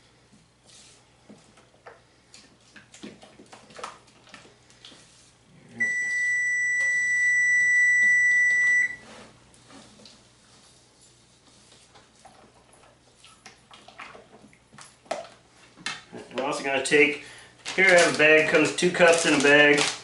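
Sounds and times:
appliance electronic beep: 0:05.8 - 0:09.0.

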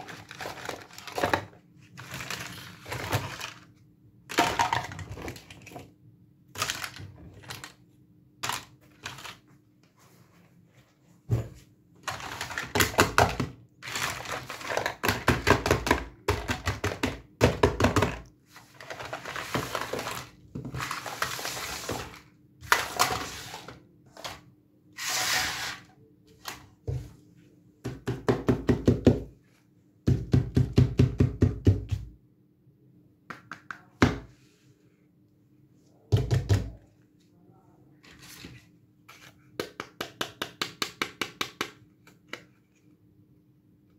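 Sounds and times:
plastic toy pieces clattering: 0:00.0 - 0:03.7, 0:04.3 - 0:05.9, 0:06.5 - 0:07.8, 0:08.4 - 0:09.4, 0:12.0 - 0:17.0, 0:18.0 - 0:24.4
toys scraping on table: 0:25.0 - 0:25.9.

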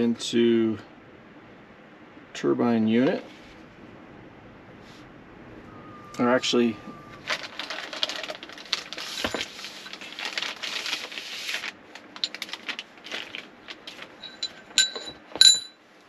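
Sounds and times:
plastic packaging crinkling: 0:07.2 - 0:14.7.

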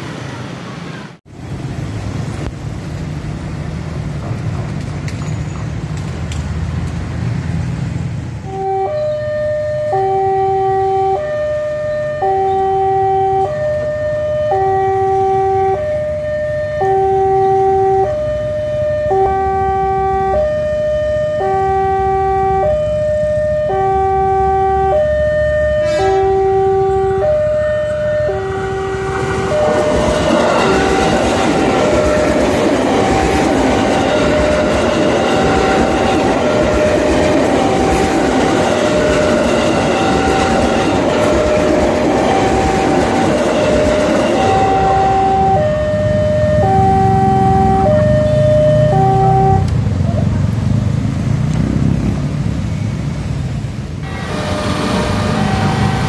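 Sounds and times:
train wheels rumbling over rails: 0:00.0 - 0:08.4, 0:25.6 - 0:56.0
level crossing alarm: 0:08.6 - 0:49.7.

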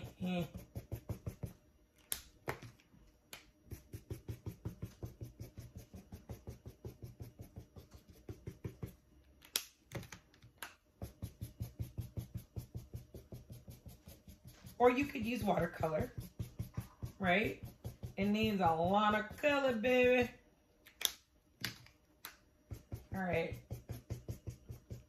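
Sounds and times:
marker scratching on paper towel: 0:00.0 - 0:01.6, 0:03.7 - 0:09.0, 0:11.0 - 0:20.3, 0:22.6 - 0:25.0.

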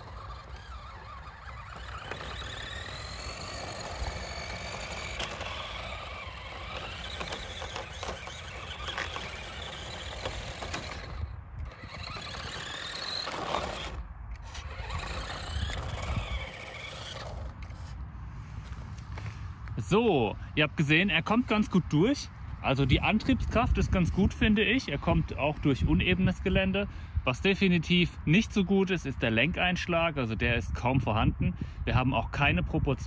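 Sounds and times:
electric toy car motor whining: 0:00.0 - 0:18.0
wind rumble on microphone: 0:00.1 - 0:19.8, 0:22.3 - 0:33.0.

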